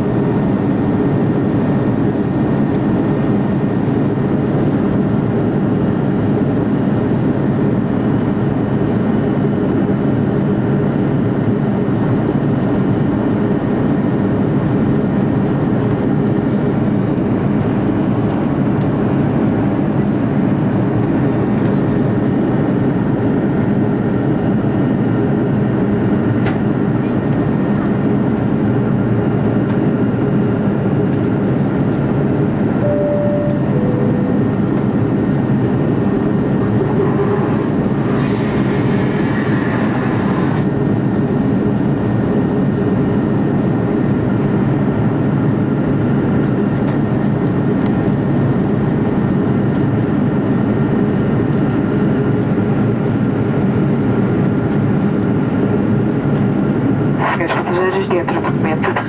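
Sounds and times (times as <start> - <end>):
airliner cabin engine drone: 0.0 - 59.0
two-note cabin chime: 32.8 - 35.2.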